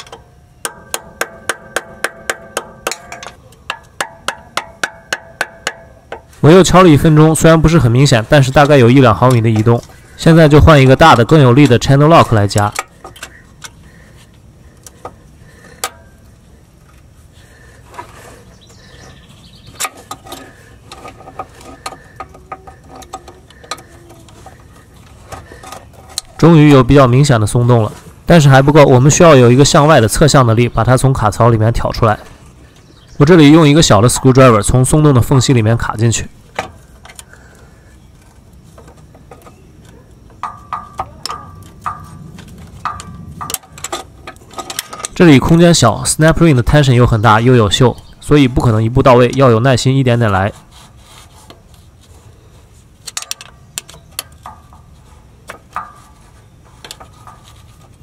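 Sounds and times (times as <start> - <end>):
sharp ringing metallic clicks: 0.0 - 6.2, 40.4 - 44.0
screwdriver prying metal ring: 0.0 - 6.3, 40.4 - 45.2
pliers clicking and scraping metal: 19.8 - 26.6, 40.9 - 45.4.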